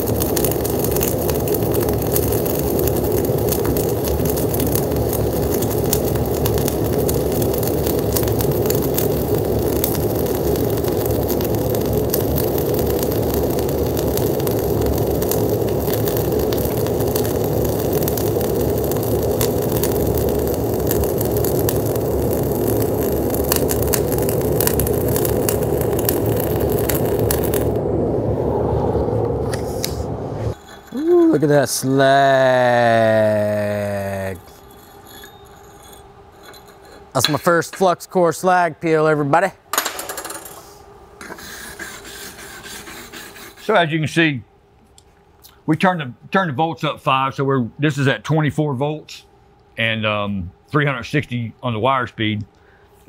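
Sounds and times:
welding arc crackling: 0.0s - 28.0s, 29.5s - 38.6s.

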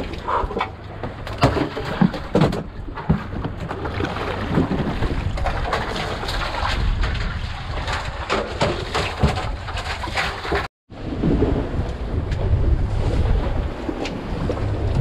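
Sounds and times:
knocks and splashes: 0.0s - 15.0s
wind buffeting microphone: 4.4s - 15.0s.

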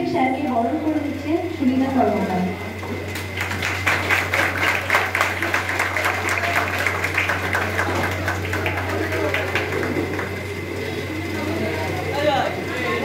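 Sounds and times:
people clapping: 3.1s - 11.2s.

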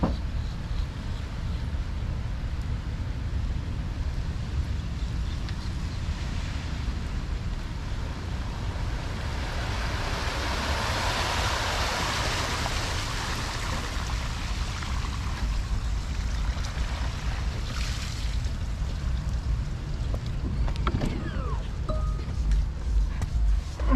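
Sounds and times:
wind rumble on microphone: 0.0s - 23.9s
tyres swishing through water: 8.2s - 19.8s.

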